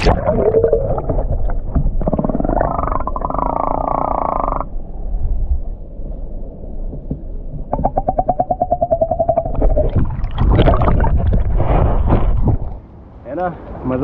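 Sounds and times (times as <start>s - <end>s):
water splashing and sloshing: 0.0s - 3.6s, 6.9s - 12.9s
muffled underwater rumble: 0.0s - 12.8s
pulsing hum: 0.0s - 12.9s.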